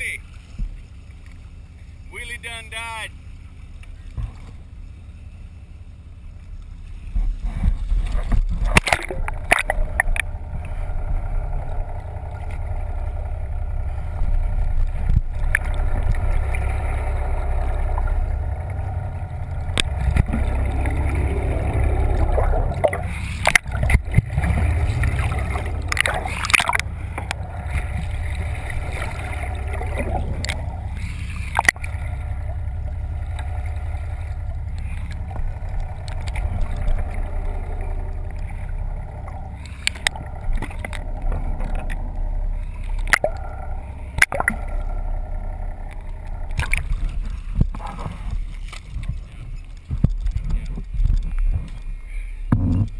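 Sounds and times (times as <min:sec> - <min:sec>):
underwater low rumble with gurgling: 0:00.0 - 0:52.9
sharp knocks on hull: 0:04.1 - 0:04.6, 0:52.5 - 0:52.9.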